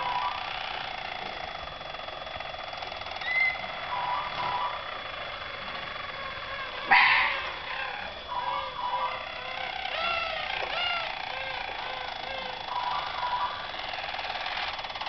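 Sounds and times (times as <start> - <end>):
canaries singing trills: 3.2 - 14.6.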